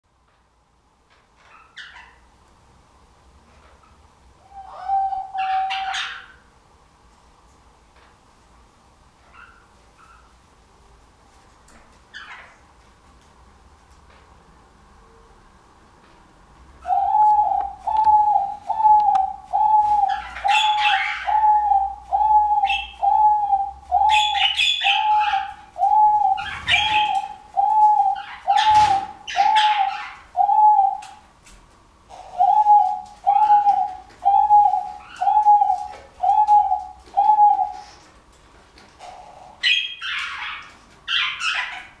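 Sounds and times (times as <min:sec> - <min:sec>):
dove cooing: 0:04.4 - 0:06.4, 0:16.8 - 0:31.2, 0:32.1 - 0:38.0, 0:39.0 - 0:42.0.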